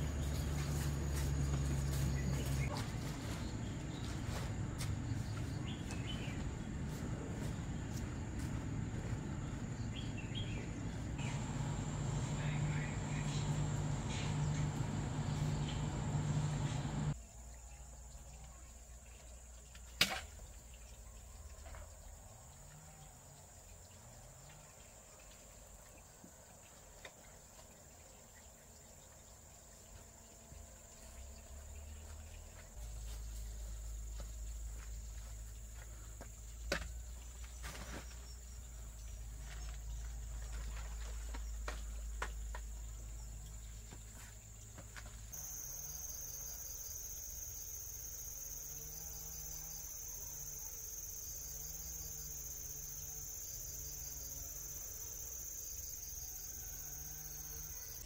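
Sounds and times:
low rumble: 6.4 - 17.2
insects chirring: 8.2 - 18.2, 28.0 - 58.0.

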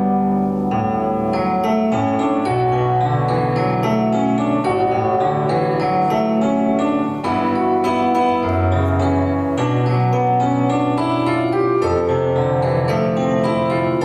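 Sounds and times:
keyboard chords and melody: 0.0 - 14.0.

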